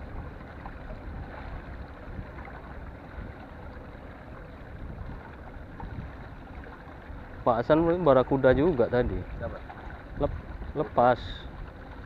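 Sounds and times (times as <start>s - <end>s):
wind on microphone: 0.0s - 3.5s, 4.6s - 6.4s, 8.3s - 12.0s.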